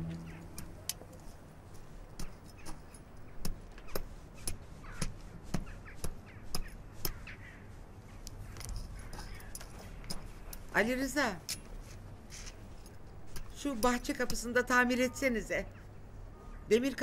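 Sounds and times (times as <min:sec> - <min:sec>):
garden tools tapping and clicking: 0:02.1 - 0:07.2, 0:08.2 - 0:11.7, 0:12.9 - 0:14.9.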